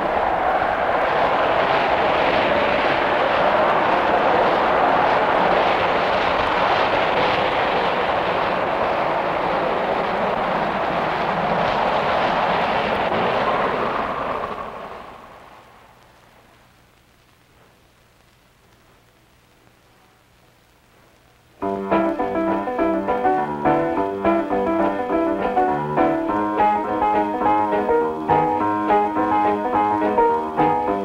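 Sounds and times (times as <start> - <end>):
vehicle noise roar: 0.0 - 15.9.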